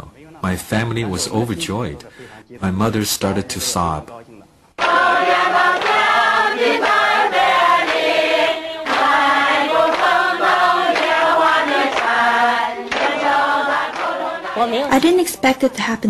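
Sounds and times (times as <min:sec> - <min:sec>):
group singing in unison: 0:04.8 - 0:15.0.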